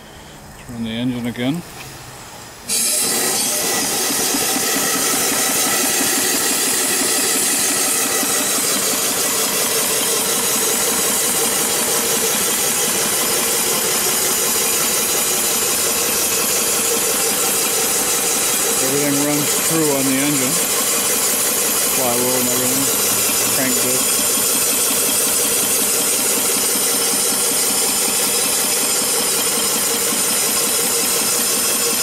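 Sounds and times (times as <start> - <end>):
loud steam hiss: 2.6 - 32.0
steam engine exhaust chuff: 2.6 - 32.0.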